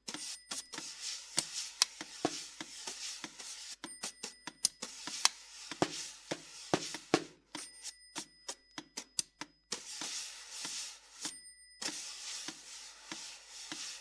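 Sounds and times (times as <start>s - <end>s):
scraping rub on drum: 0.1s - 3.8s, 4.8s - 7.4s, 9.7s - 14.0s.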